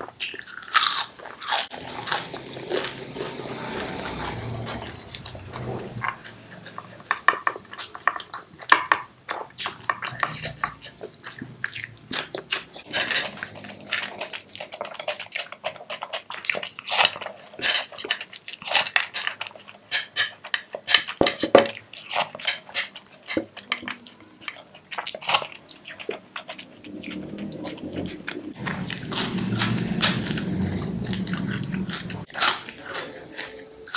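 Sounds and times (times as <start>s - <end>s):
crunchy chewing: 0.0s - 33.9s
wet mouth sounds: 22.0s - 32.8s.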